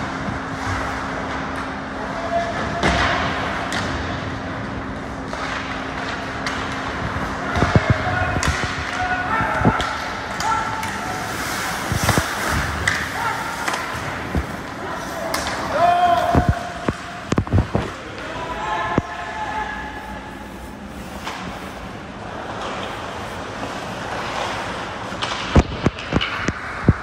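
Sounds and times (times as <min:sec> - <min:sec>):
steady hum: 0:00.0 - 0:27.0
players calling: 0:07.6 - 0:22.2.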